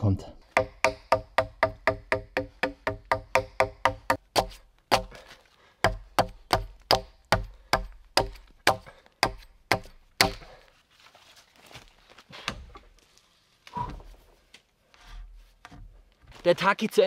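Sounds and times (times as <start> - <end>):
machete chopping wood: 0.6 - 5.2, 5.9 - 10.6.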